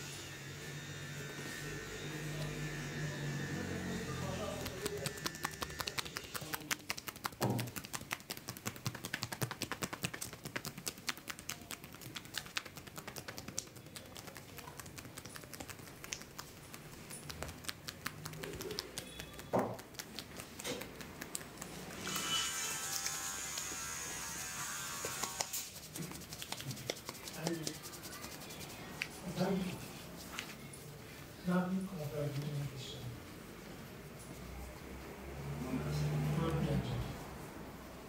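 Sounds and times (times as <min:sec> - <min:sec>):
hands rubbing through damp hair: 0:04.5 - 0:22.0, 0:24.9 - 0:31.2
hands slapping in massage: 0:04.5 - 0:22.0, 0:25.0 - 0:29.2.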